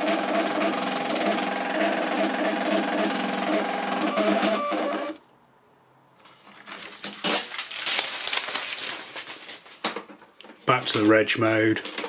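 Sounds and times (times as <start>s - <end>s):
thermal printer running: 0.0s - 5.2s
paper crackling rustles: 6.2s - 11.2s.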